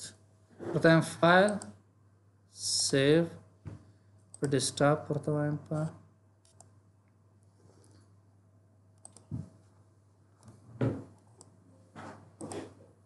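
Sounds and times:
faint electrical hum: 0.0s - 13.0s
computer mouse clicks: 6.4s - 6.8s, 9.0s - 9.5s, 10.4s - 10.6s.

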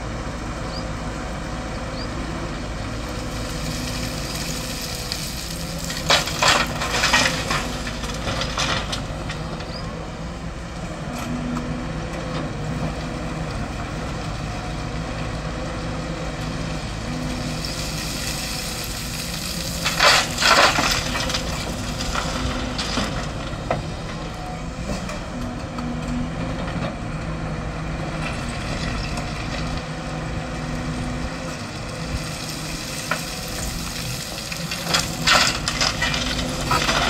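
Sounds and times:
excavator diesel engine running: 0.0s - 37.0s
bucket scraping rubble: 18.8s - 23.0s.

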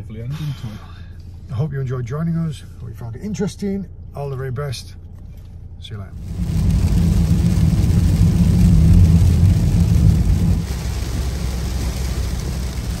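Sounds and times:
road and engine rumble: 0.0s - 13.0s
rain hissing on car: 6.1s - 13.0s.

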